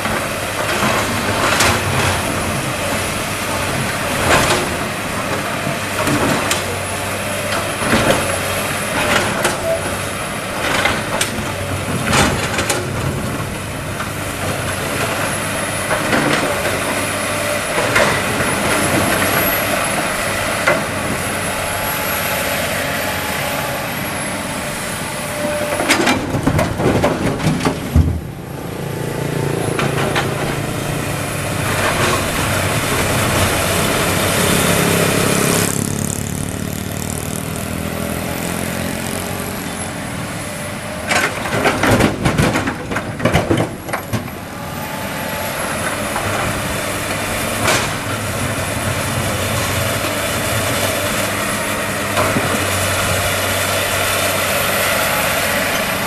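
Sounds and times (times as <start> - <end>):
excavator diesel engine running: 0.0 - 56.0
hydraulic whine: 6.3 - 41.4.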